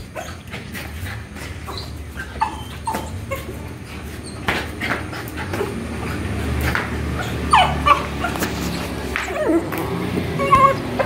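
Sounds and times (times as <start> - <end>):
puppy whimpering and yipping: 1.6 - 4.6, 7.2 - 11.0.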